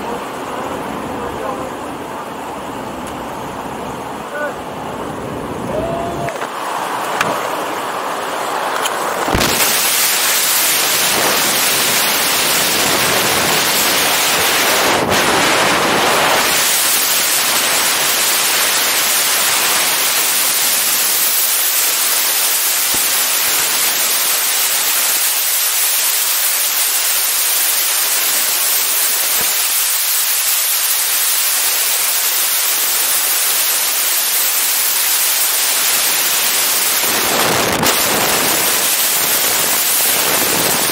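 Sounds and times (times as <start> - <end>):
wind rushing over microphone: 4.8 - 18.4, 35.9 - 40.9.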